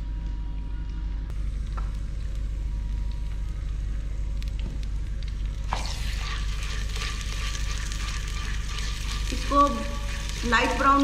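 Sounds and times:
low hum: 0.0 - 11.0
paste sizzling in hot oil: 5.6 - 11.0.

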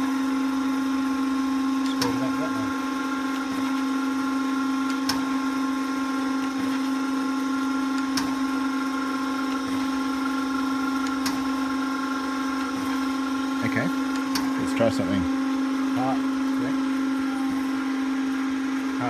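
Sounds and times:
surface grinder humming: 0.0 - 19.0.

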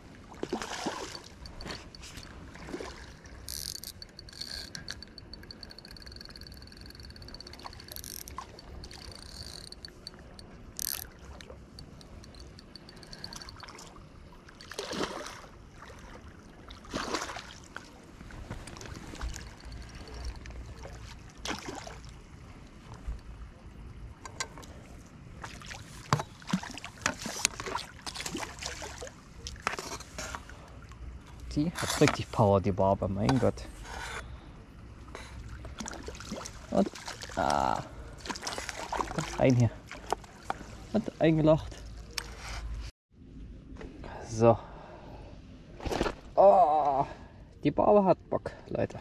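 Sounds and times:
fish splashing at the surface: 0.4 - 1.5, 14.6 - 16.2.

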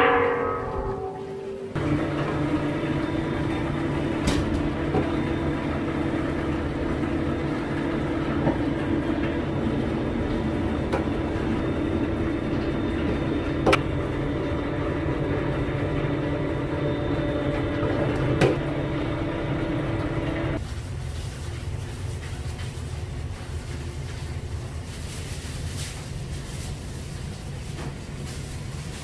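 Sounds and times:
machine humming: 0.0 - 20.6.

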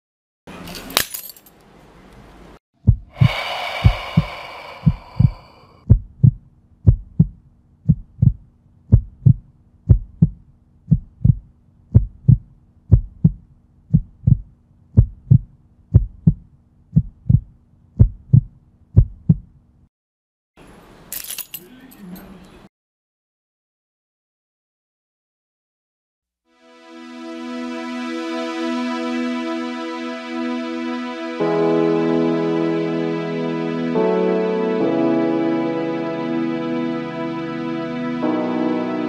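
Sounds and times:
heartbeat thumps: 2.8 - 19.6
low drone: 3.1 - 5.8.

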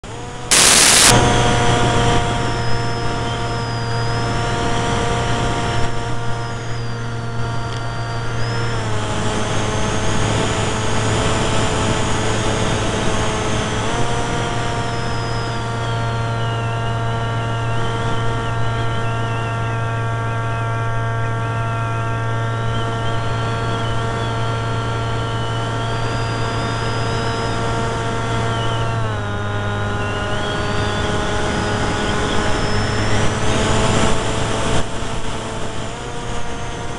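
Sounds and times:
electric motor and propeller whine: 0.0 - 36.9
rush of air: 0.5 - 2.3.

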